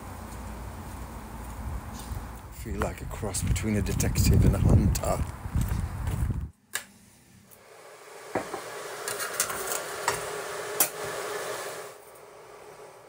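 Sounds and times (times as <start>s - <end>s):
electric kettle hissing: 7.6s - 13.0s.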